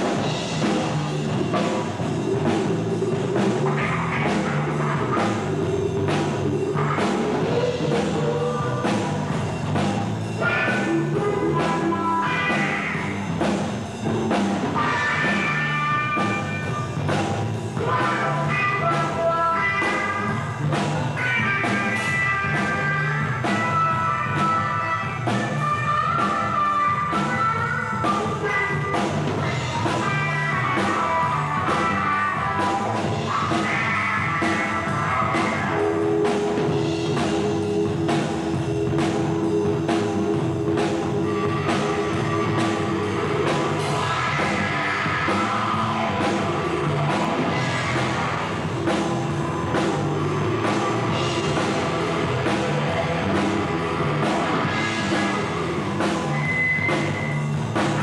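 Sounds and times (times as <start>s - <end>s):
drum kit beat: 0.0s - 58.0s
electric guitar: 0.0s - 58.0s.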